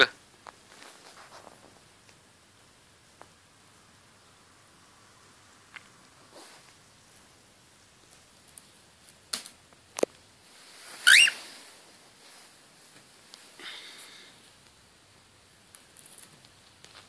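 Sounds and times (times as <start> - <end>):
cockatiel whistled call: 11.0 - 11.4.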